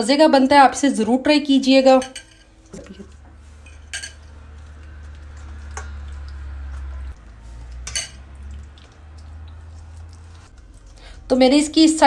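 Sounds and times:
clinks against metal bowl: 1.9s - 4.4s, 7.8s - 8.3s
hands squelching marinade into chicken: 2.6s - 11.3s.

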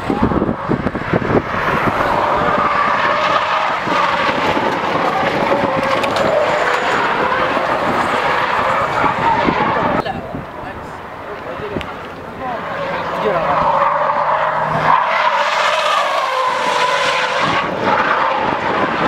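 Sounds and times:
car tyres screeching: 0.0s - 19.0s.

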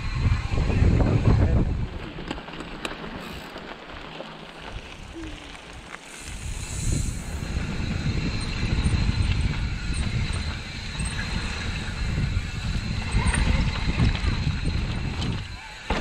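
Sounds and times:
bike rattling: 0.0s - 16.0s
tyres crunching over stones: 2.2s - 6.4s
low rumble: 4.8s - 15.6s.

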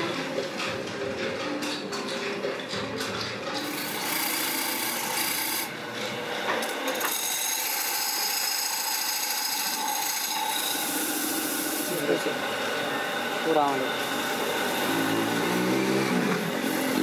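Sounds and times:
lathe drive running: 3.6s - 17.0s.

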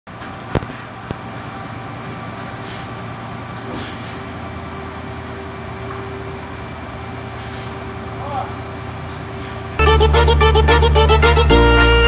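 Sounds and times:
short hisses: 2.6s - 3.0s, 3.7s - 4.2s, 7.4s - 7.8s
low engine drone: 9.8s - 12.0s.

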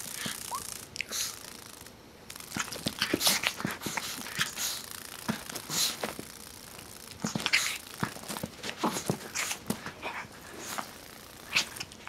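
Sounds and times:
dog scratching on carpet: 2.5s - 6.3s, 7.1s - 12.0s.

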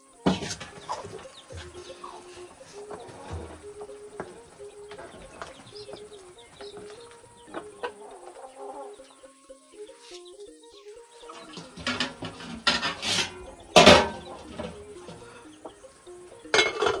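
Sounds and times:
chickens clucking: 0.0s - 17.0s
spoon stirring in metal pot: 11.4s - 15.3s.

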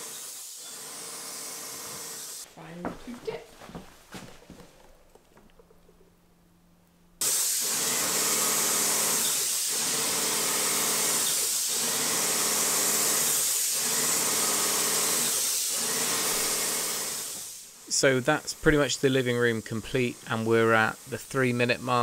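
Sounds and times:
paint sprayer hissing: 7.2s - 22.0s.

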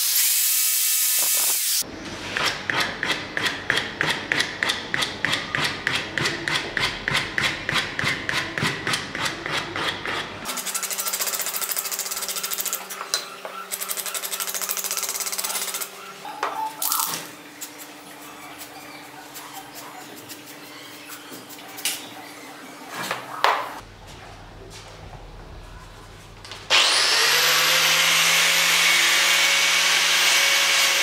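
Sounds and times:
sanding wood by hand: 5.0s - 12.9s.

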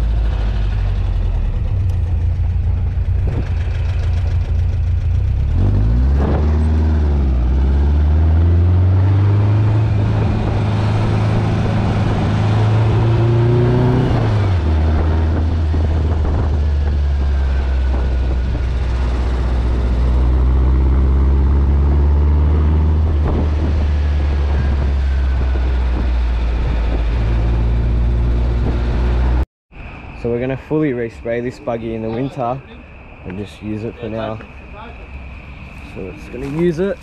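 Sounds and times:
car engine under way: 0.0s - 29.4s
wind and road noise: 0.0s - 37.0s.

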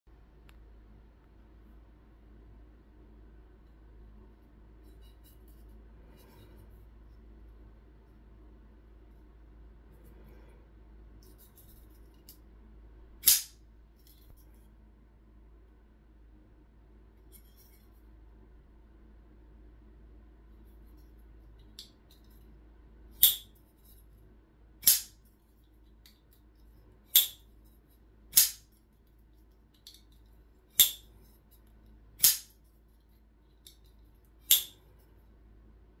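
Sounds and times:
pocket knife blade snapping: 13.2s - 13.6s, 23.2s - 23.5s, 24.8s - 25.2s, 27.1s - 27.4s, 28.4s - 28.6s, 30.8s - 31.0s, 32.2s - 32.5s, 34.5s - 34.8s.

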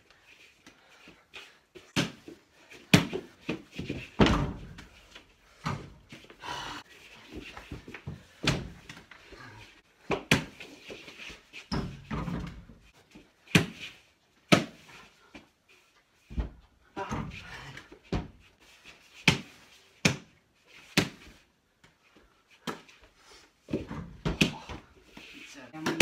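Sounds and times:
ball thumping on wooden floor: 23.7s - 24.9s.

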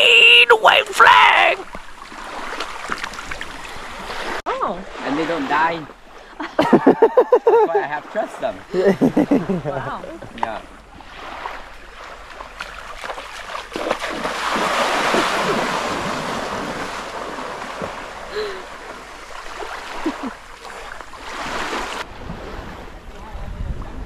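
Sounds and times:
water splashing around boat: 0.7s - 24.0s
wind on microphone: 22.0s - 24.0s.

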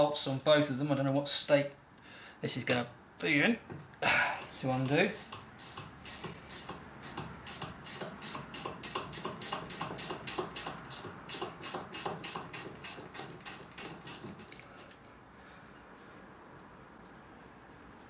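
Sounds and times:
ratchet clicking: 5.2s - 15.0s.

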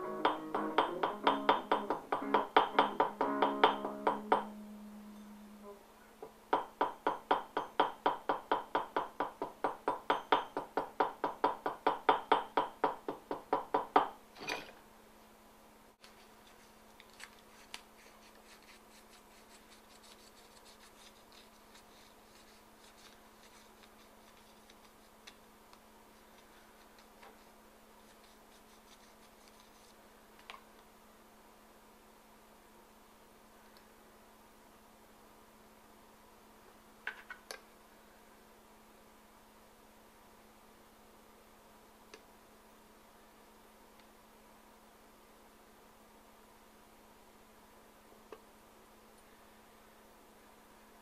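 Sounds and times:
plucked acoustic guitar: 0.0s - 5.7s.

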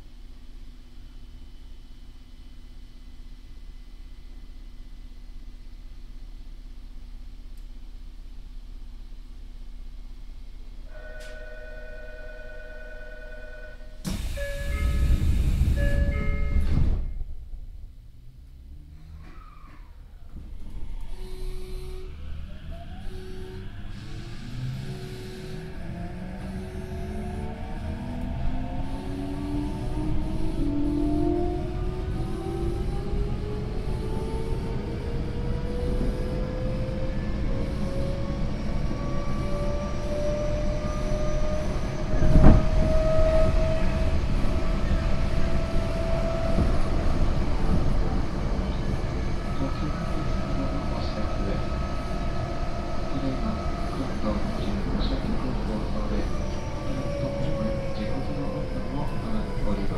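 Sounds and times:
wheels rumbling on track: 8.8s - 59.9s
electric train motor whine: 20.2s - 59.9s.

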